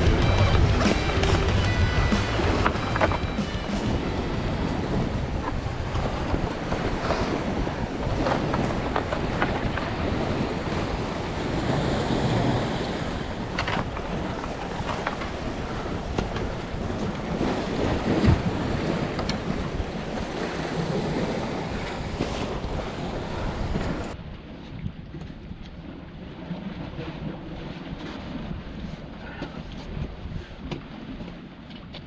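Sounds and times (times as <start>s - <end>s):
sea surf: 0.0s - 24.6s
wind buffeting microphone: 0.0s - 31.3s.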